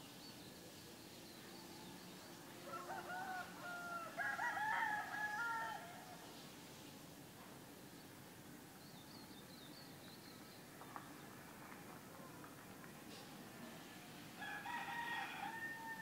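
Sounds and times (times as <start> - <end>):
rooster crowing: 2.6 - 6.0, 14.4 - 16.0.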